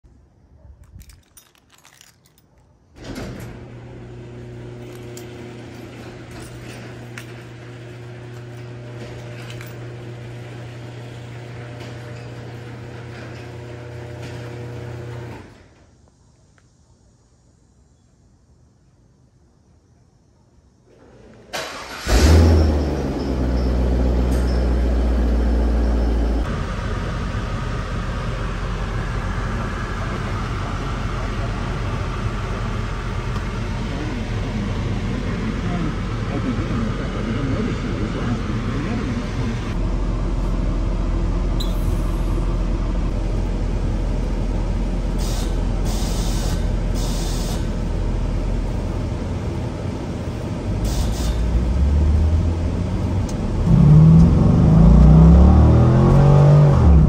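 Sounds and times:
garage door opener humming: 0:03.0 - 0:15.8
garage door rolling up: 0:03.0 - 0:15.8.

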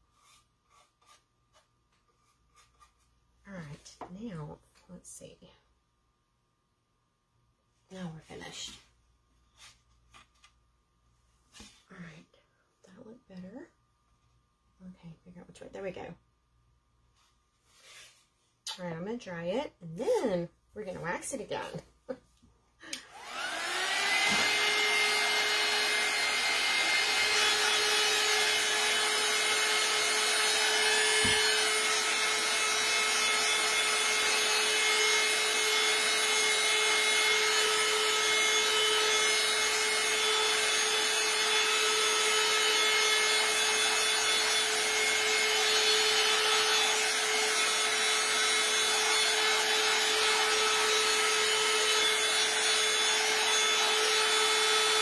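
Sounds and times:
heat tool fan whining: 0:22.8 - 0:55.0.

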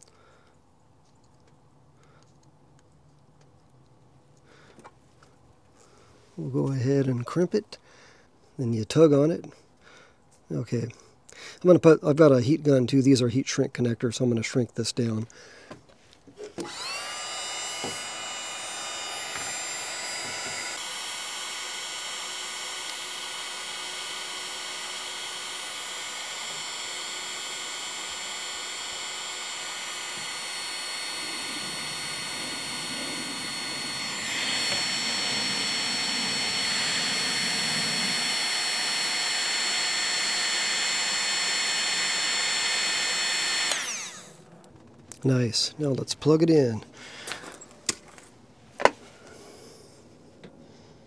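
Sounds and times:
heat gun fan whining: 0:15.6 - 0:45.2.

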